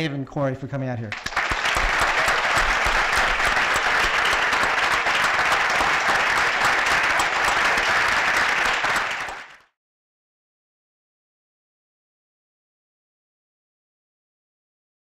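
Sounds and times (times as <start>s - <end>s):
audience applauding: 1.1s - 9.7s.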